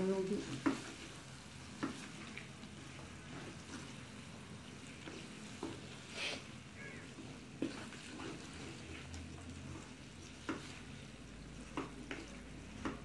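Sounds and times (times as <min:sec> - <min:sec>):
spatula knocking and scraping pan: 0:00.4 - 0:01.1, 0:01.7 - 0:02.2, 0:10.4 - 0:11.0.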